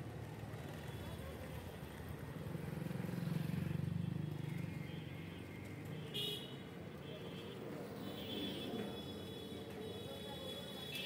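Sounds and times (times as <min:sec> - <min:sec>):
street traffic: 0:00.0 - 0:11.0
motorcycle engine passing: 0:02.4 - 0:04.6.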